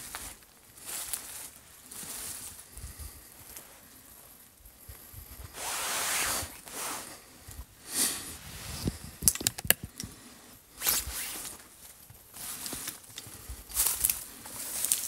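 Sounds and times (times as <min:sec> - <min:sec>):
footsteps through dry brush: 0:00.0 - 0:04.0, 0:11.0 - 0:15.0
branches cracking: 0:09.2 - 0:10.2, 0:10.8 - 0:15.0.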